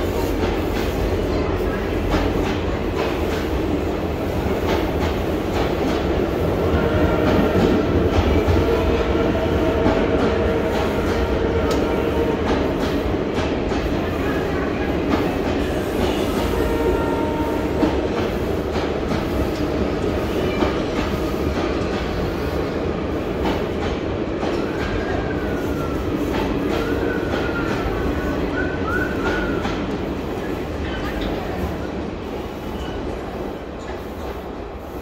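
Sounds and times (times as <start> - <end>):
train wheels rumbling on rail: 0.0 - 35.0.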